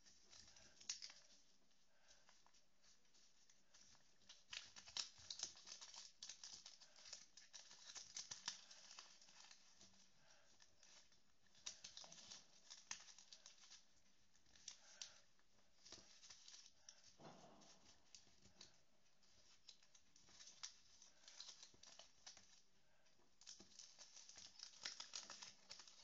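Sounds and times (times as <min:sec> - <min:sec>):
paper being folded: 0:00.0 - 0:26.0.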